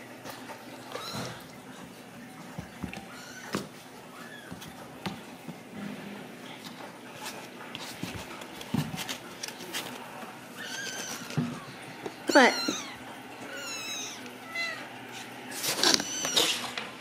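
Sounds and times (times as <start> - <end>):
kitten mewing: 12.3 - 14.9.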